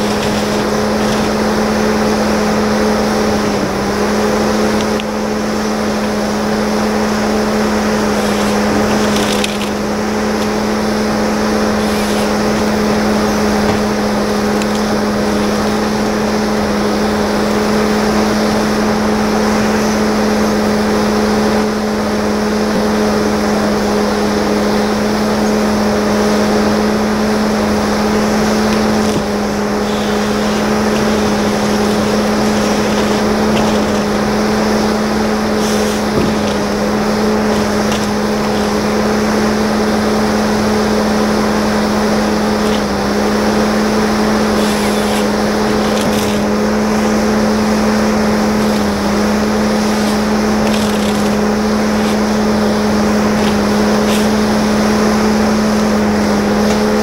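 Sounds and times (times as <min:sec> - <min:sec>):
diesel engine humming: 0:00.0 - 0:57.0.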